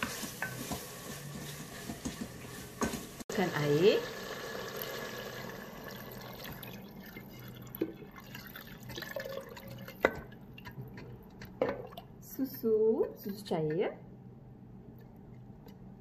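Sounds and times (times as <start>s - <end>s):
water pouring into a pot: 3.3s - 10.9s.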